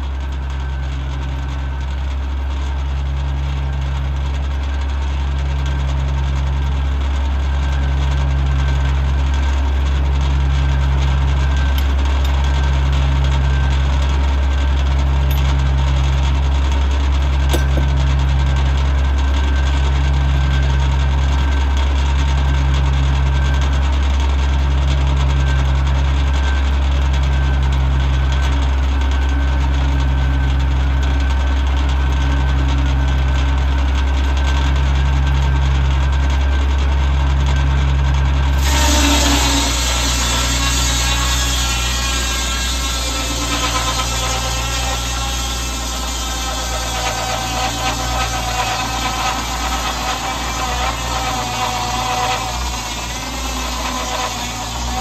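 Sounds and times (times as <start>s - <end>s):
tractor engine running: 0.0s - 38.7s
circular saw spinning free: 11.4s - 13.9s, 14.9s - 16.3s, 17.4s - 18.6s, 38.6s - 55.0s.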